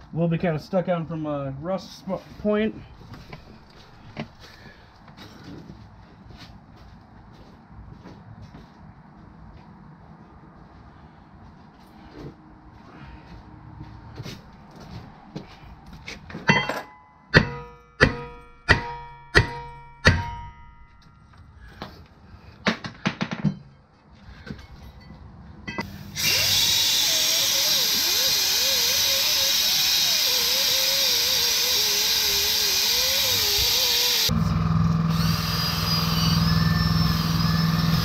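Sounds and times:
cordless drill abrasive rasp: 25.8 - 34.4, 35.1 - 38.0.

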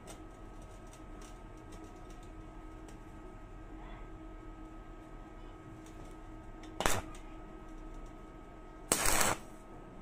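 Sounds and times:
stick welding arc buzzing: 6.7 - 7.2, 8.8 - 9.8.

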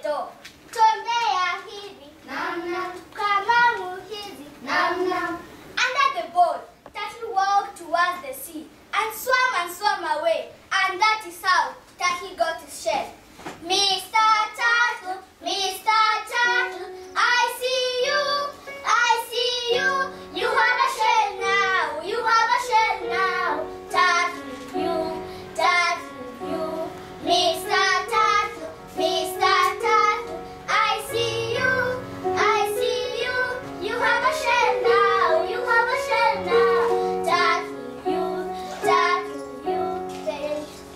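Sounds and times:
children singing: 2.3 - 5.4, 16.2 - 40.9
instrumental accompaniment: 16.6 - 40.9.

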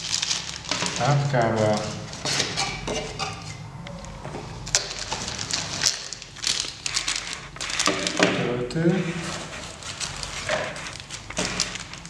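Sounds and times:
sharp plastic crackles: 0.0 - 2.8, 3.9 - 8.5, 9.2 - 12.0
plastic packaging crinkling: 0.0 - 3.0, 4.0 - 12.0.

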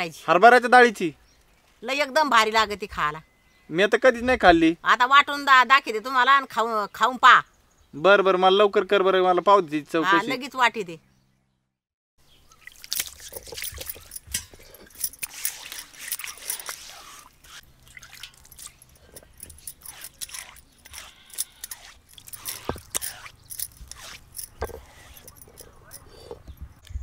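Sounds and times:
water splashing and trickling: 12.2 - 26.4
stone slab knocks and clatters: 24.4 - 25.7.

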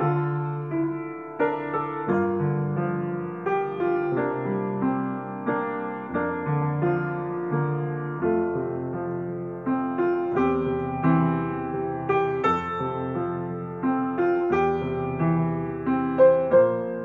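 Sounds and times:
piano chords: 0.0 - 17.0.

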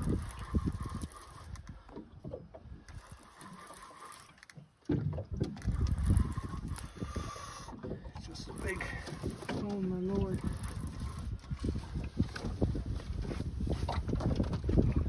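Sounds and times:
wind gusting on microphone: 0.0 - 1.8, 5.2 - 15.0
small waves lapping against hull: 0.0 - 15.0.

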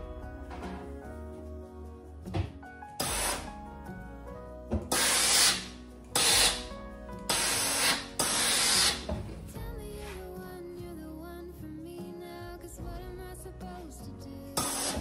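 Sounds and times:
steam iron hissing: 3.0 - 3.6, 4.9 - 6.7, 7.3 - 9.1, 14.6 - 15.0.

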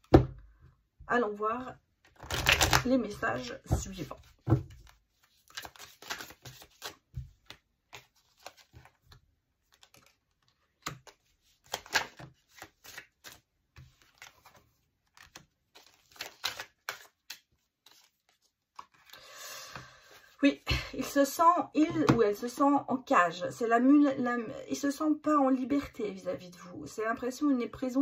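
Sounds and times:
cards being shuffled: 2.0 - 19.2.

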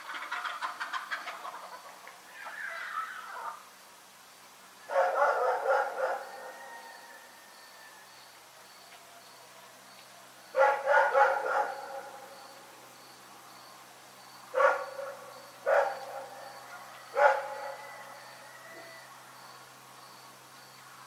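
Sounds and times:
dog barking: 4.9 - 6.6, 10.6 - 12.2, 14.5 - 16.5, 17.1 - 18.0.

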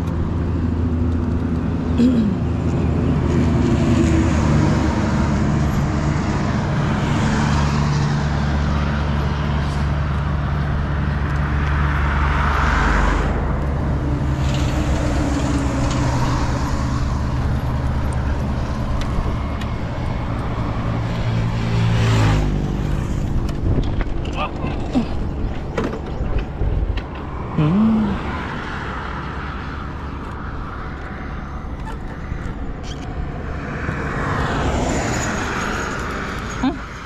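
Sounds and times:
passing traffic rush: 0.0 - 37.0.

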